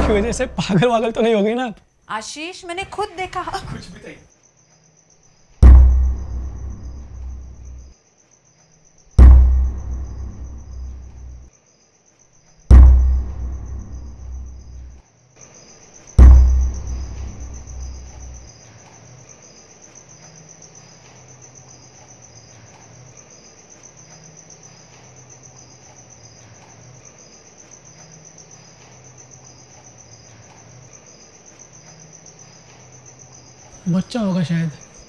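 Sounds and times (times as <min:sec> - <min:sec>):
deep boom: 0:00.0 - 0:00.7, 0:05.6 - 0:07.8, 0:09.2 - 0:11.4, 0:12.7 - 0:14.8, 0:16.2 - 0:18.4
crickets chirping: 0:00.0 - 0:35.0.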